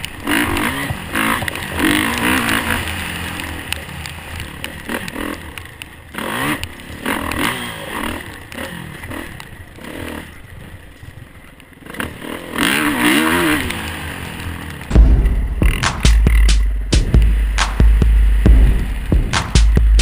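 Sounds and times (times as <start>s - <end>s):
dirt bike engine revving: 0.0s - 20.0s
music with heavy bass beat: 14.9s - 20.0s.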